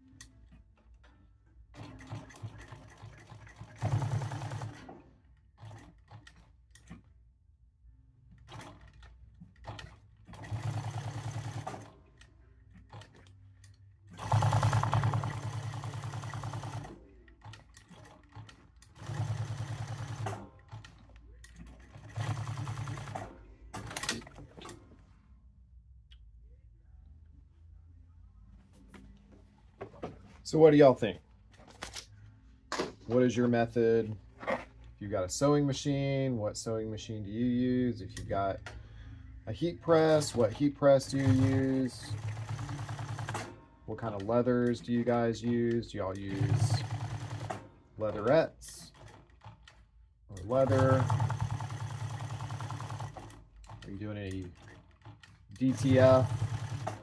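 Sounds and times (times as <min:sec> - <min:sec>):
sewing machine stitching: 0:01.7 - 0:06.6, 0:08.4 - 0:12.0, 0:14.1 - 0:24.8, 0:40.0 - 0:43.6, 0:46.2 - 0:49.8, 0:50.4 - 0:57.0.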